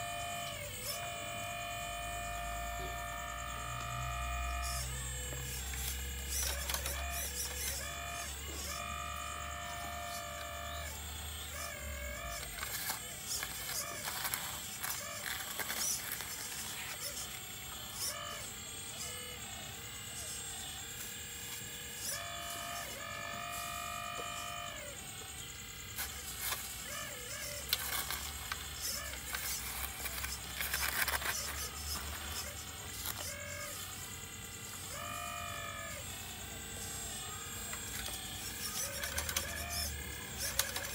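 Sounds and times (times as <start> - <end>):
hydraulic pump whining: 0.0 - 40.9.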